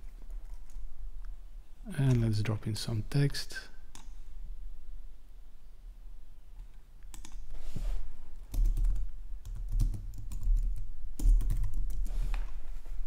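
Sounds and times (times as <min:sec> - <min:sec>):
typing on keyboard: 0:00.0 - 0:00.8, 0:07.1 - 0:07.5, 0:08.5 - 0:12.1
low steady hum: 0:00.0 - 0:13.0.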